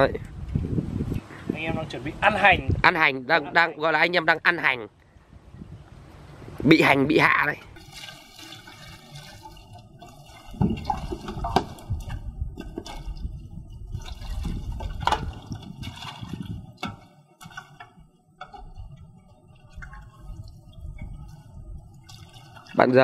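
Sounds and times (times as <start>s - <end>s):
water splashing: 7.0s - 23.0s
water pouring into metal basin: 7.7s - 13.3s, 13.9s - 16.6s, 22.0s - 23.0s.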